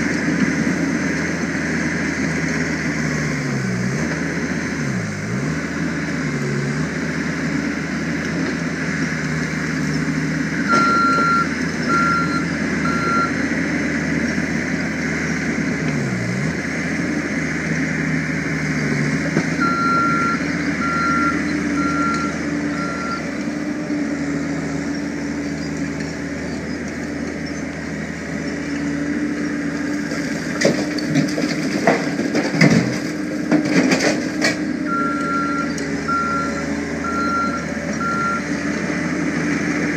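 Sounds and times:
loader engine running: 0.0s - 39.9s
backup alarm beeping: 10.7s - 13.3s, 34.9s - 38.6s.

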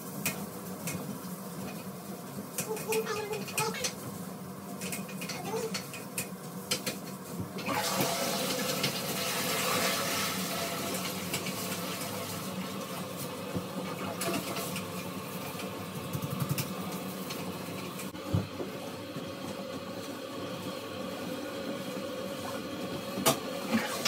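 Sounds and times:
water refilling toilet: 7.6s - 18.2s, 21.6s - 24.0s
toilet flushing: 7.6s - 18.3s, 20.8s - 24.0s.

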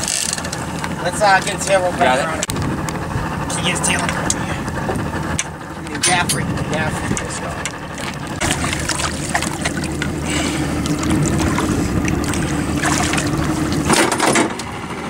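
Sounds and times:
boat engine humming: 0.0s - 15.0s
wind noise on microphone: 2.4s - 3.5s, 6.0s - 9.4s
knocks and splashes: 5.9s - 14.6s.

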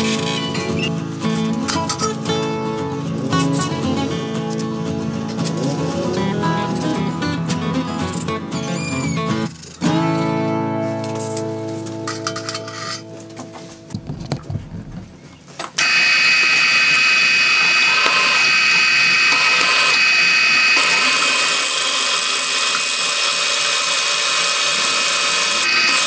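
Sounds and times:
high-pitched power tool: 0.0s - 1.0s, 15.8s - 26.0s.

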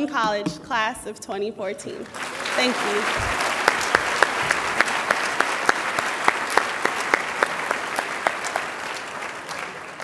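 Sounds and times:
audience applauding: 2.0s - 10.0s
nearby sharp claps: 2.1s - 10.0s.

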